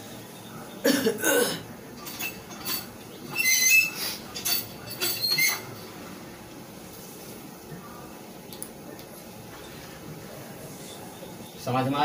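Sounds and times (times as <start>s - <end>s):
eraser rubbing whiteboard with squeaks: 3.2s - 4.3s, 4.9s - 5.7s.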